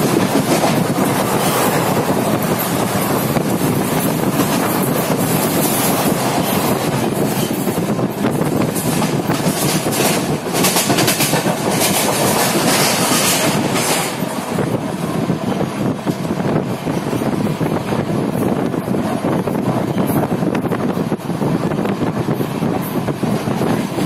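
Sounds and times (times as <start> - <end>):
wheels clattering over rail joints: 0.0 - 14.4
train rumble: 0.0 - 24.0.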